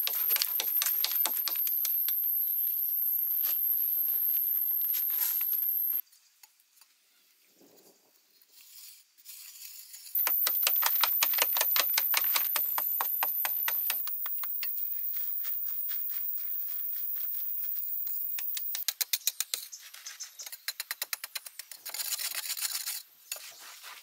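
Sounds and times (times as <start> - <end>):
steady high-pitched whine: 0.0 - 6.0.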